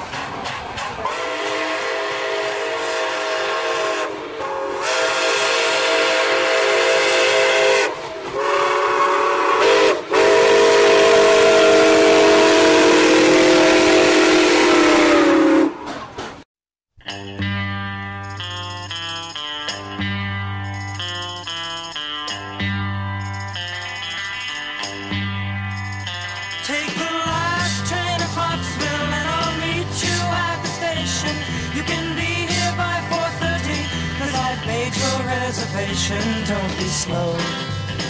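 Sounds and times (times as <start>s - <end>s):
steam locomotive whistle: 0.8s - 16.2s.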